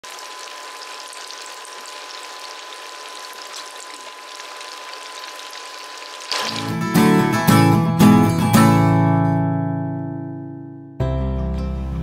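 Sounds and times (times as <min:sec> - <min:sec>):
fries sizzling in hot oil: 0:00.0 - 0:07.3.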